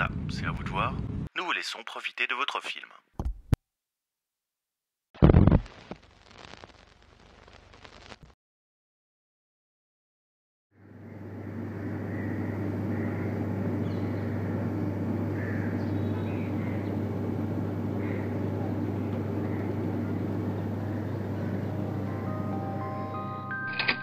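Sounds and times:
low hum: 10.8 - 24.0
faint steady musical tones: 20.6 - 24.0.

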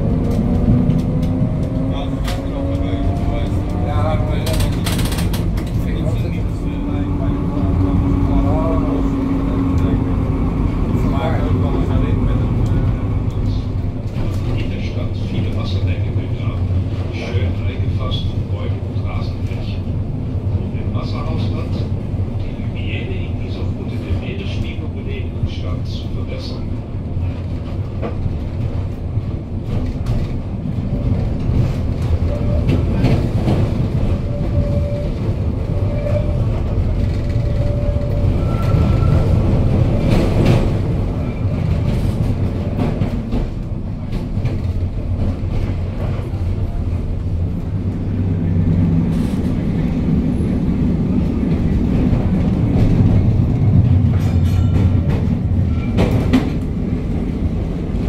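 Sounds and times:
tram wheels rumbling: 0.0 - 58.0
wheels clicking on rails: 0.1 - 7.7.

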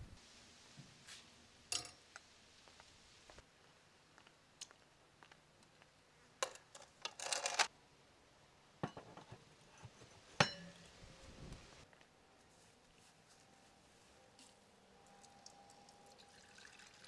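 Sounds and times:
metal clank with ring: 10.4 - 10.8.

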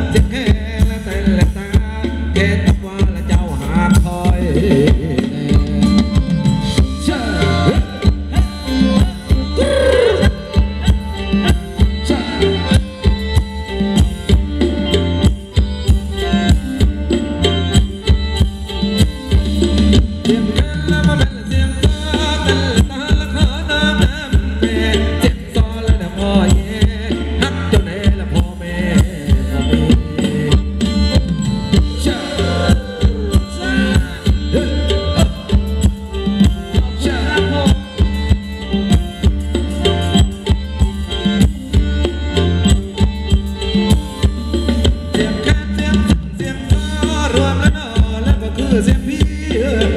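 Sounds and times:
bass line: 0.0 - 49.9
fast drum beat: 0.0 - 49.9
live band dance music: 0.0 - 49.9.

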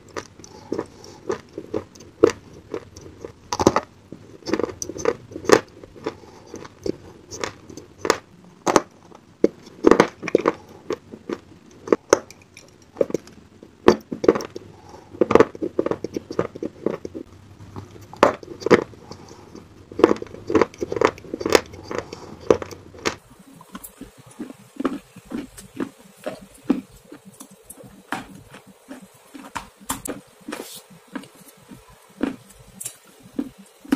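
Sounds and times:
crunching of clay being chewed: 0.0 - 33.9.

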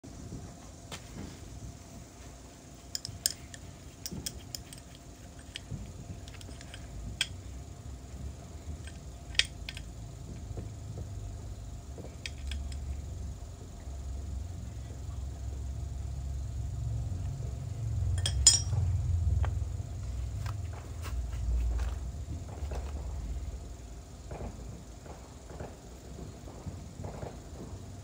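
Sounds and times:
metallic clinks of small tools: 18.2 - 18.8.

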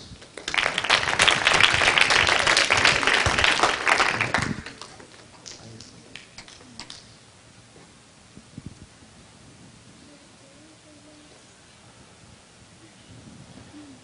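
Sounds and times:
audience applause: 0.0 - 5.8.

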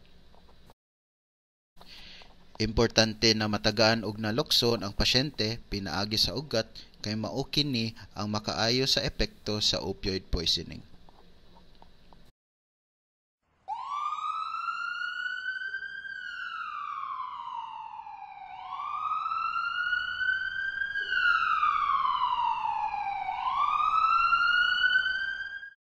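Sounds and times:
emergency siren wailing: 13.6 - 25.8.

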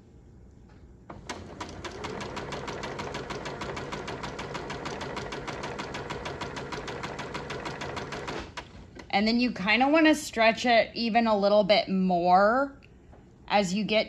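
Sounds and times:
sewing machine stitching: 1.1 - 8.8.

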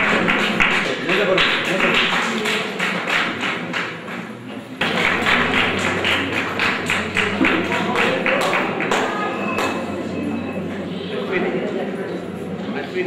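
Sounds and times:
audience clapping: 0.0 - 9.9.

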